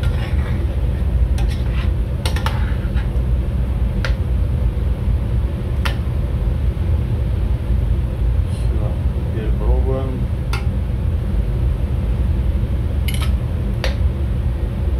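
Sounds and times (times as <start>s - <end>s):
steady low hum: 0.0s - 14.9s
metal ladle scraping pot: 1.4s - 3.1s.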